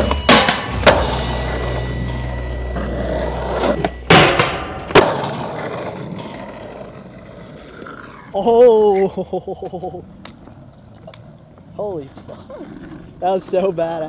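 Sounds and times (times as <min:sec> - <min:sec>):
skateboard wheels rolling on concrete: 0:00.0 - 0:14.0
skateboard knocking: 0:02.8 - 0:06.2.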